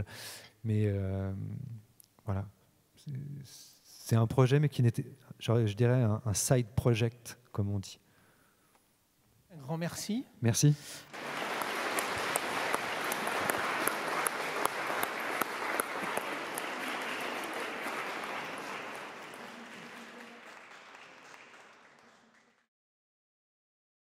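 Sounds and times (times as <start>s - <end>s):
audience applauding: 11.1s - 22.7s.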